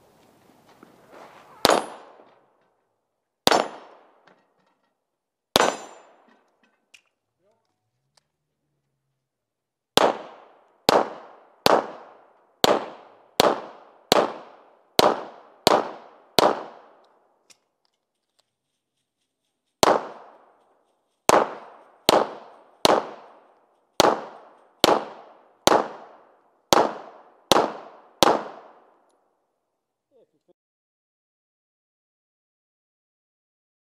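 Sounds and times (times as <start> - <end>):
pistol shots: 1.6 - 2.5, 3.4 - 4.2, 5.5 - 6.5, 10.0 - 17.1, 19.8 - 20.6, 21.3 - 29.0.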